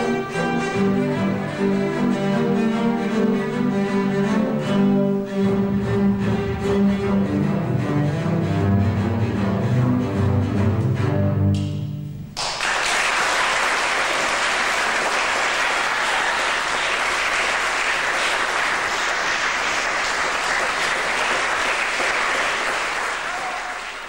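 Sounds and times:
audience applauding: 12.4s - 24.0s.

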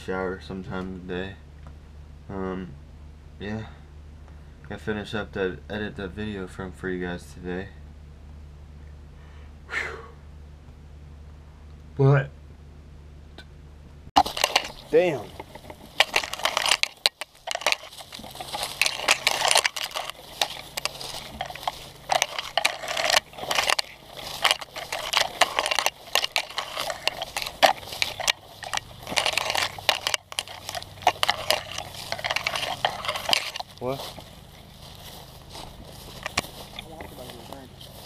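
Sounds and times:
grass swishing and crackling: 14.2s - 38.0s.

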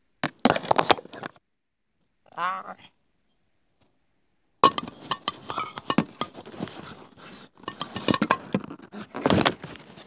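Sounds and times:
rapid clatter of clicks and clinks: 7.7s - 8.6s.

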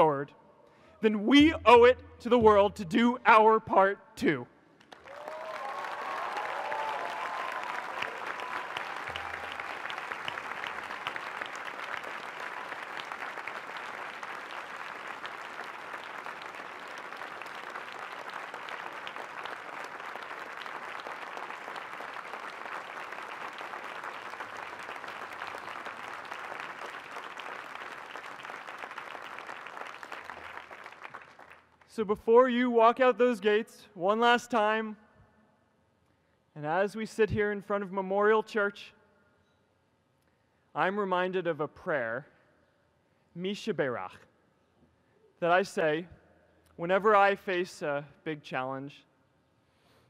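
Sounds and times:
large audience applauding: 4.8s - 31.9s.

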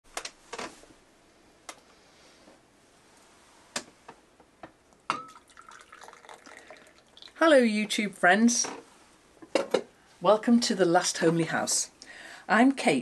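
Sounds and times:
teapot clicks and knocks: 5.1s - 6.4s.

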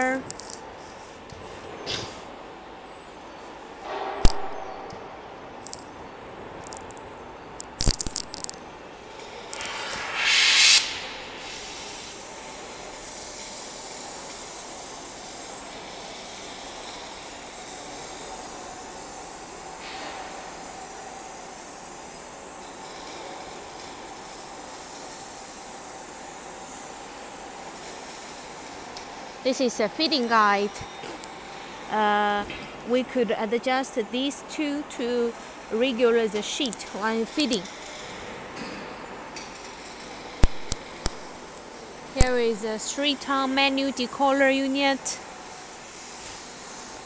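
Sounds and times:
sharp clicks and knocks: 7.6s - 8.6s, 40.4s - 41.3s
steady factory hissing: 8.2s - 47.0s
short burst of hiss: 9.3s - 17.2s.

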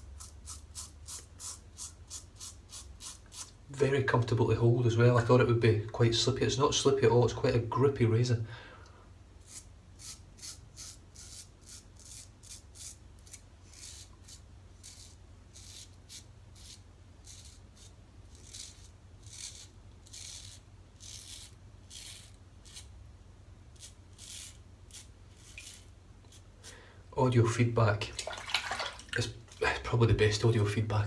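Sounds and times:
razor scraping stubble: 0.0s - 3.6s, 9.4s - 22.9s, 23.7s - 26.5s.

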